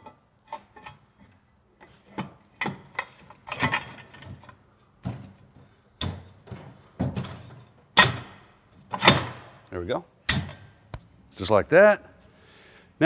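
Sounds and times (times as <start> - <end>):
metal crossbar knocking and clanking: 6.0 - 9.5.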